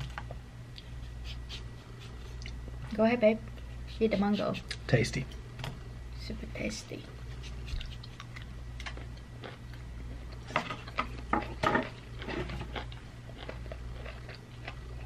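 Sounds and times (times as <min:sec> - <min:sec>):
biting and chewing crisp fruit: 0:07.3 - 0:15.0.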